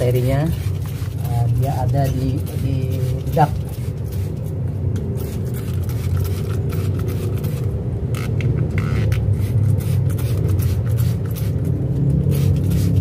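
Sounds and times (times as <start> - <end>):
hand sprayer hissing: 0.0 - 4.5
steady low rumble: 0.0 - 13.0.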